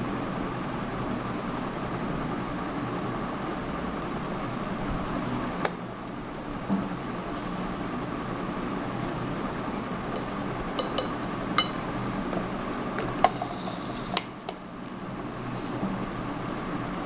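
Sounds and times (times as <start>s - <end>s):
steady background hum: 0.0s - 17.0s
kitchenware clinking on glass bowl: 10.8s - 11.8s.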